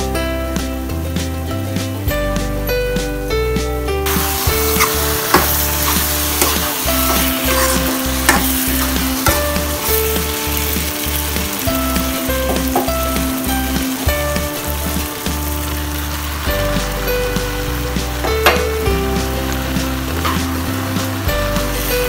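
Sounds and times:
background music with bass: 0.0 - 22.0
shrimp sizzling in a wok: 4.0 - 22.0
metal spatula scraping pan: 4.1 - 16.4.

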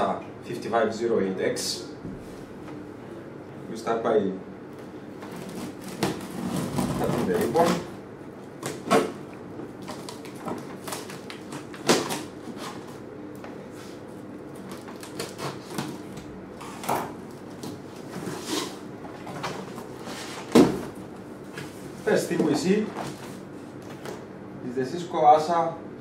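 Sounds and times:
cardboard flaps pulled open: 5.3 - 7.9
cutter slitting packing tape: 5.4 - 7.9, 14.6 - 16.0.

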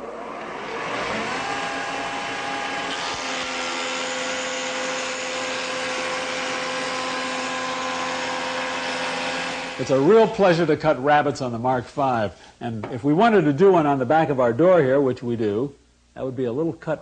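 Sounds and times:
shaper motor whine: 0.0 - 10.1
cutter shaping wood edge: 1.1 - 9.8.

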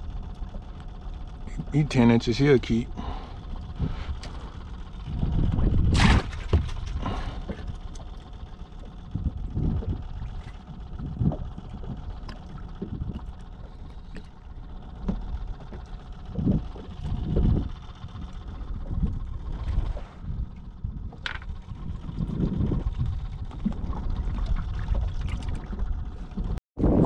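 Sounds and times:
water lapping against boat hull: 0.0 - 26.6
wind buffeting microphone: 4.9 - 7.8, 8.9 - 13.5, 16.2 - 27.0.

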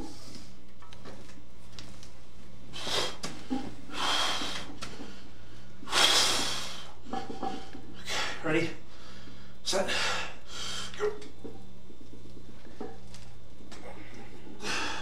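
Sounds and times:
steady low hum: 0.0 - 15.0
man forceful breaths: 2.7 - 7.0, 13.8 - 15.0.

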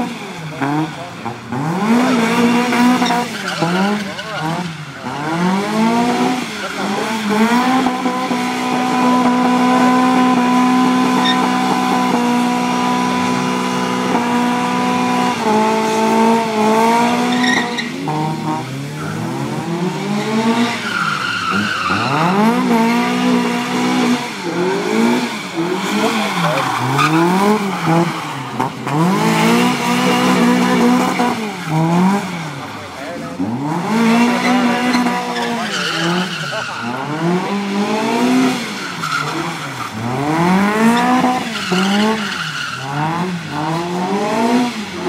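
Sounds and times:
car engine revving: 0.0 - 45.0
tyres squealing: 2.4 - 4.9, 17.1 - 19.4, 20.2 - 22.8, 25.6 - 31.8, 34.2 - 37.6, 40.9 - 43.2.

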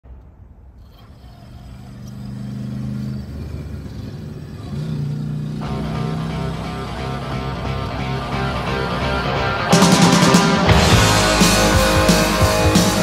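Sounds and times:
truck engine humming and revving: 0.1 - 13.0
rock music: 5.6 - 13.0.

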